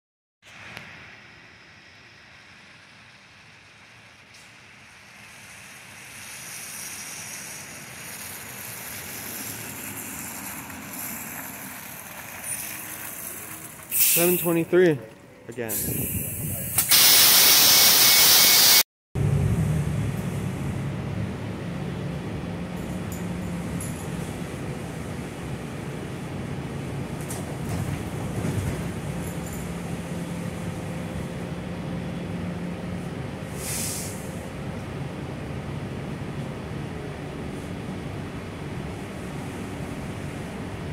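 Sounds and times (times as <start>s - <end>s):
tyres hissing on wet road: 0.4s - 14.7s, 15.7s - 18.8s, 33.0s - 35.2s
bus engine running: 0.5s - 40.9s
air hiss: 13.9s - 14.6s, 15.7s - 18.8s, 33.5s - 34.4s.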